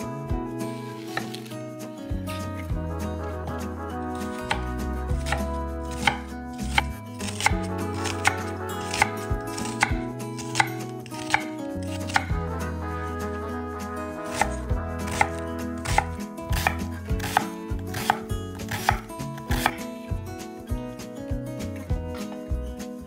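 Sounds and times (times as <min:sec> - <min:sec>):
knife chopping on wooden board: 0:04.4 - 0:12.4, 0:14.3 - 0:19.8.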